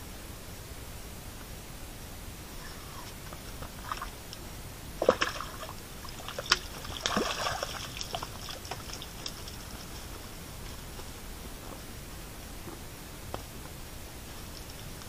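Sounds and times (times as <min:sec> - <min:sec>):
fish splashing in water: 0:05.0 - 0:09.7.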